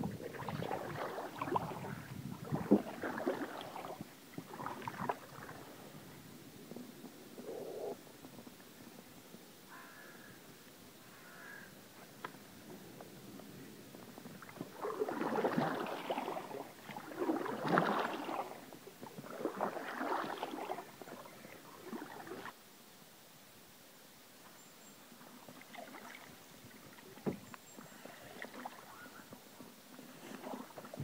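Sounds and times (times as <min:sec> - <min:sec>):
paddle stroke water gurgle: 0:00.0 - 0:08.0, 0:13.0 - 0:22.6, 0:25.3 - 0:31.0.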